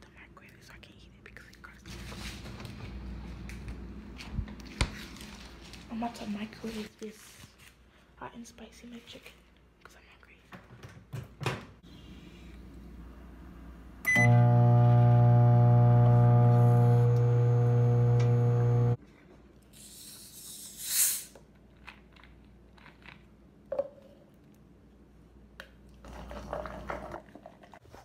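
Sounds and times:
microwave oven humming: 12.9s - 19.0s
soda bottle opening hiss: 19.8s - 21.4s.

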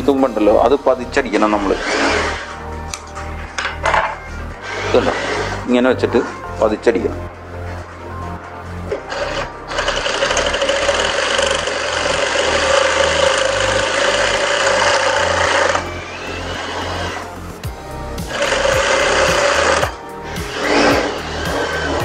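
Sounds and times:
sewing machine running: 9.0s - 17.3s, 18.3s - 22.0s.

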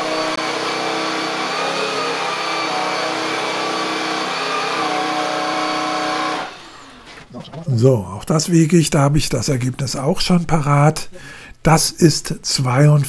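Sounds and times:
vacuum cleaner running: 0.0s - 7.3s.

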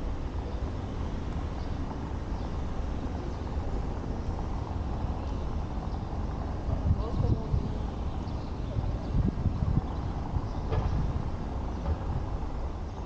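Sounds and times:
car rumbling on cobbles: 9.2s - 13.0s.

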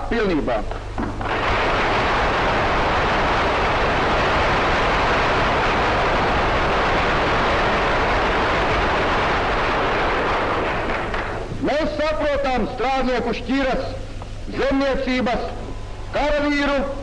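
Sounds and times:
soundtrack hiss: 0.0s - 17.0s
crowd applause: 1.2s - 11.5s.

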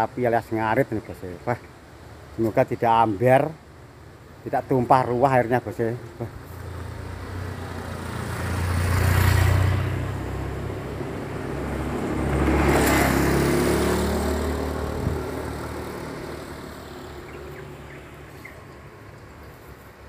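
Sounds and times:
motor scooters passing by: 6.2s - 20.0s.

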